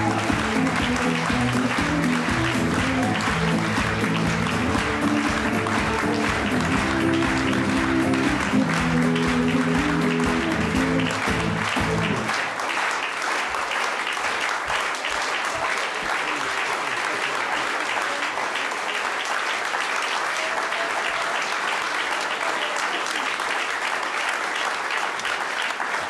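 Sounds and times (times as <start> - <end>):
live band with guitars: 0.0 - 12.3
audience applauding: 0.0 - 26.0.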